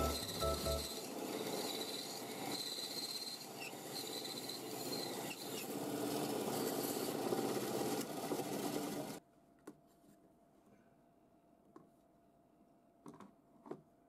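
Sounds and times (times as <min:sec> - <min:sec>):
bandsaw cutting wood: 0:00.0 - 0:06.3.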